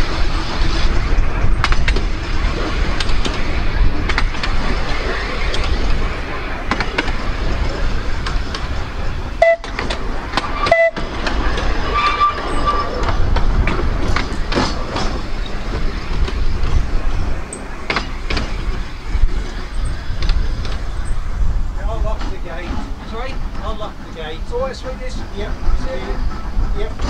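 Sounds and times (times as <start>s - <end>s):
clicks and knocks of track: 0.0s - 21.2s
wheel squeals: 0.0s - 21.5s
tram wheels rumbling on rail: 0.0s - 27.0s.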